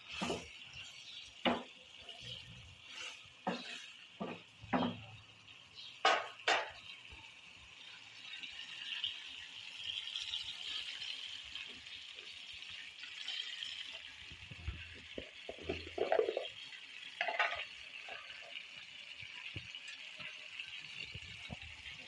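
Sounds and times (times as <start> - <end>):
wooden spoon scraping a pan: 0.0 - 5.0, 14.8 - 16.5
frying sizzle: 0.0 - 22.0.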